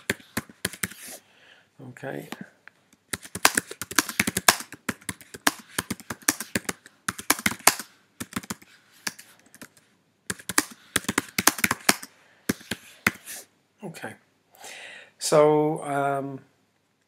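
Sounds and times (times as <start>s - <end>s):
typing on keyboard: 3.1s - 12.7s.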